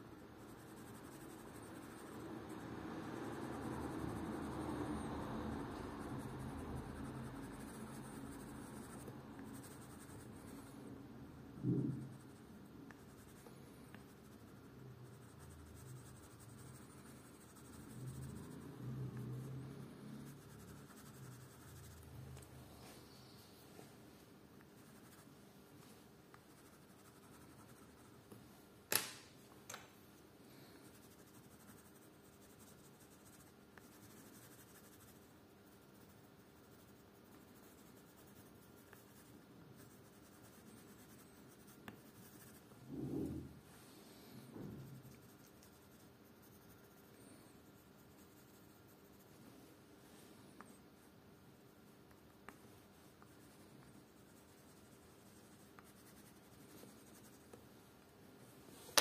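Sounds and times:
pencil scratching on paper: 0.2 - 10.9, 11.5 - 23.2, 24.6 - 25.4, 26.3 - 28.3, 30.5 - 49.5, 51.6 - 57.6
sharp click: 28.9 - 29.9.

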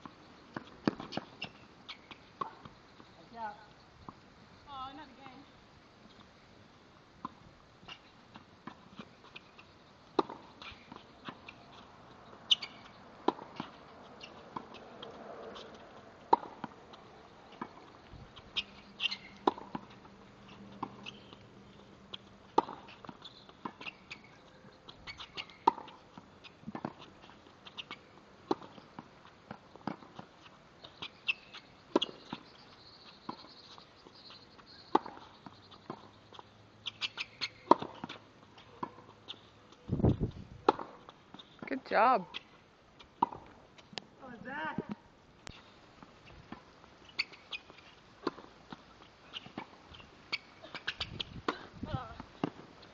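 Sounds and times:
racket hitting tennis ball: 10.2 - 11.9, 12.5 - 16.8, 18.4 - 20.1, 22.4 - 24.3, 25.1 - 26.0, 26.6 - 30.3, 34.9 - 36.1, 36.9 - 39.2, 40.6 - 41.4, 44.7 - 52.9
balls bouncing on hard court: 12.5 - 16.8, 22.5 - 24.3.

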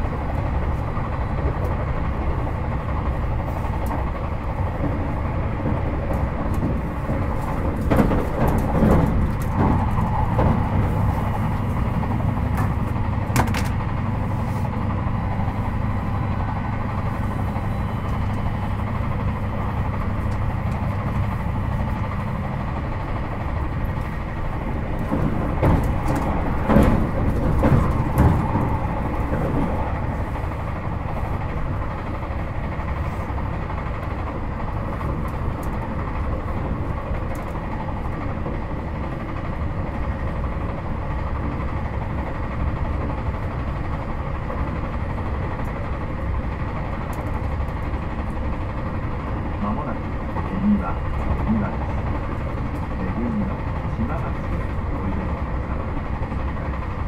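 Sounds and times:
train wheels rumbling on rail: 0.0 - 57.0
track clicks and knocks: 3.8 - 15.4, 16.0 - 31.6.

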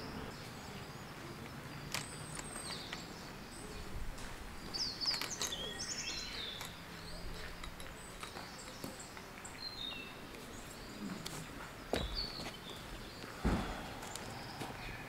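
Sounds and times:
birds chirping and calling: 0.0 - 15.0
steady outdoor hiss: 0.0 - 15.0.

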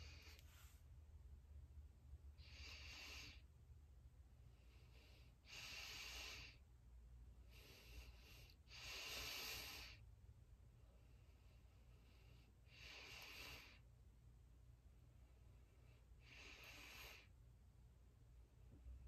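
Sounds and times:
breathing close to microphone: 0.0 - 0.9, 2.4 - 3.5, 4.5 - 6.6, 7.4 - 10.1, 11.0 - 13.8, 15.7 - 17.3.

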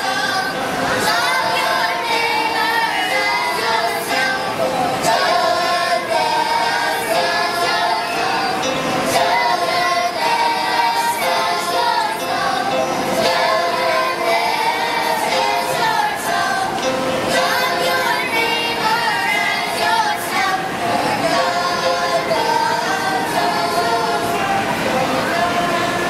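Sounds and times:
children's choir singing: 0.0 - 26.0.

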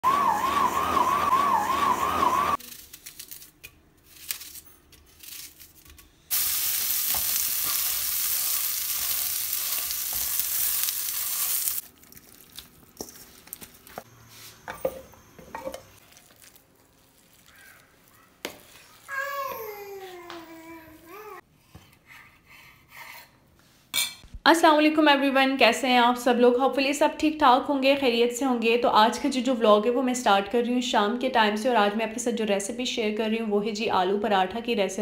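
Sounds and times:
stand mixer whining: 0.0 - 2.6
flatbread sizzling in oil: 6.3 - 19.2.

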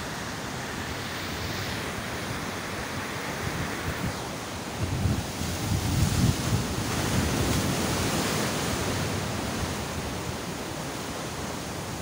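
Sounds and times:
ocean surf crashing on rocks: 0.0 - 12.0
wind buffeting microphone: 1.2 - 10.6.

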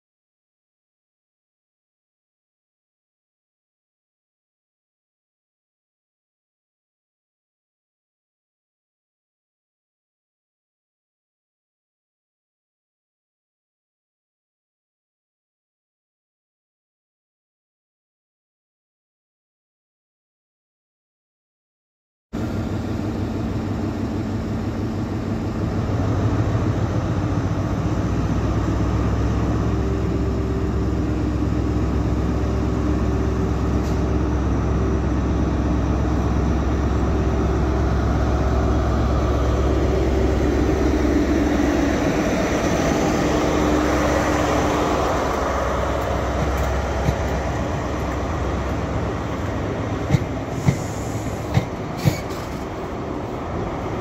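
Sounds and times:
diesel engine running loudly: 22.4 - 46.8
train wheel clicks: 45.3 - 48.8, 49.4 - 52.8.

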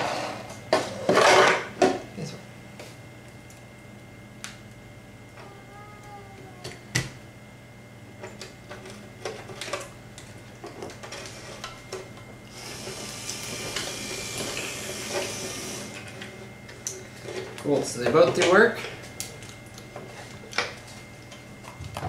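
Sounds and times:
small gear motor whirring: 12.5 - 16.0.

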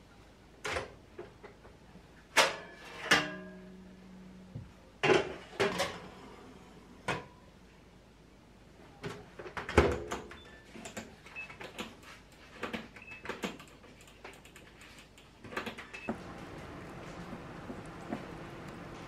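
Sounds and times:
oven fan humming: 16.0 - 19.0.

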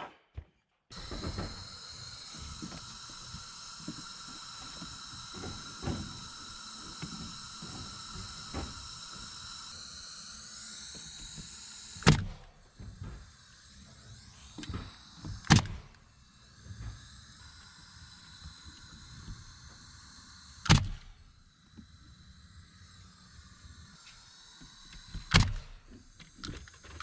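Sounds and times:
nail gun firing: 0.9 - 17.2, 20.6 - 21.3, 23.7 - 27.0
high-pitched buzz: 0.9 - 27.0.

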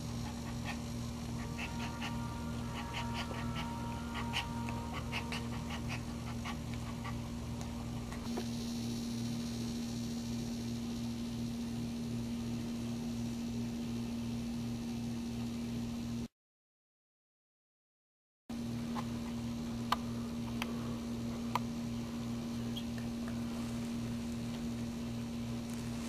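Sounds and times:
electrical hum: 0.0 - 16.3, 18.5 - 26.0
dog whimpering: 0.3 - 7.3.

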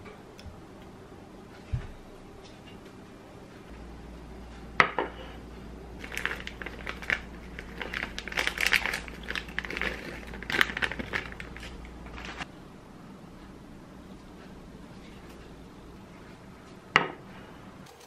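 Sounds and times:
cheese dropping: 6.0 - 12.4
plastic bag crinkling: 6.0 - 12.4.

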